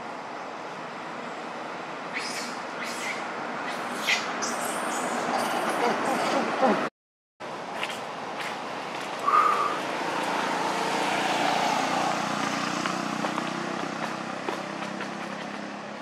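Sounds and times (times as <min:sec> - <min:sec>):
motor vehicle passing: 0:08.4 - 0:16.0.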